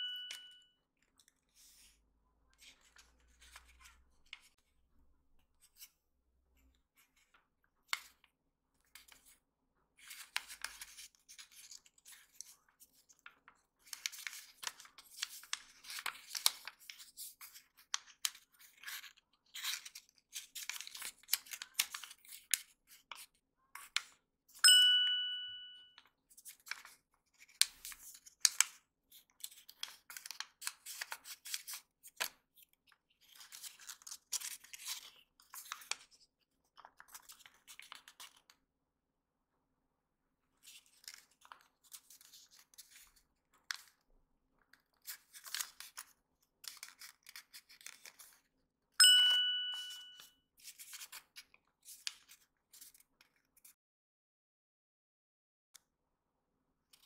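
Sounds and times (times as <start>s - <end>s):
clear ding: 0.0s - 0.6s, 24.6s - 25.9s, 49.0s - 50.2s
paper being creased and folded: 10.0s - 24.2s, 26.3s - 38.5s, 40.6s - 48.5s, 50.6s - 53.7s.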